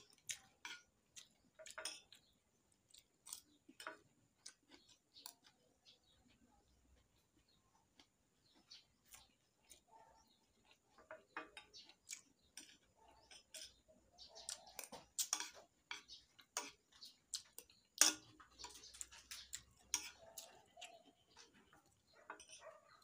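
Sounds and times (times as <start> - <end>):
person chewing and smacking: 0.0 - 22.7
metal spoon scraping ceramic plates: 18.0 - 20.3, 22.2 - 22.8.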